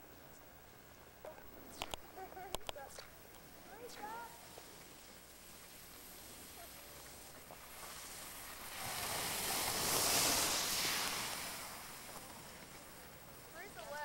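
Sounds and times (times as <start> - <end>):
skis scraping over snow: 3.8 - 14.0.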